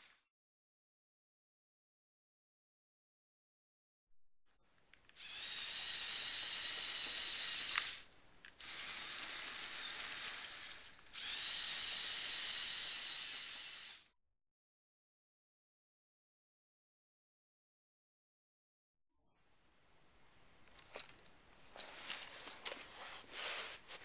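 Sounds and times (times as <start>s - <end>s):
toy motors whirring: 5.1s - 14.1s.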